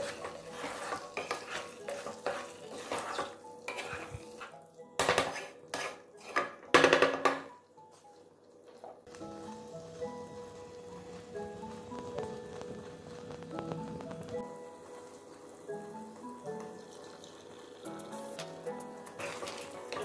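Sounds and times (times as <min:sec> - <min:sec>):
spatula scraping frying pan: 0:00.0 - 0:06.8, 0:18.0 - 0:20.0.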